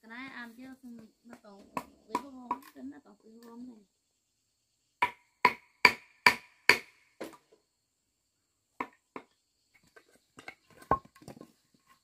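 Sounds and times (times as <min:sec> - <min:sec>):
hand tool striking wood: 0:05.0 - 0:07.4.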